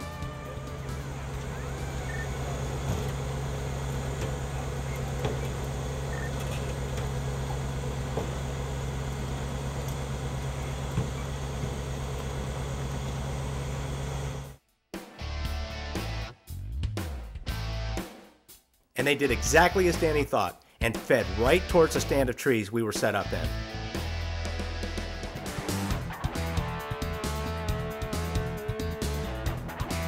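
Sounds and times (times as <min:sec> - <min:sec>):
engine idling drone: 0:00.0 - 0:14.6.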